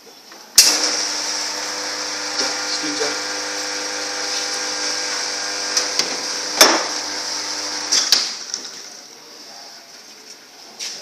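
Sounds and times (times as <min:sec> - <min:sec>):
espresso machine pump hissing: 0:00.7 - 0:08.1.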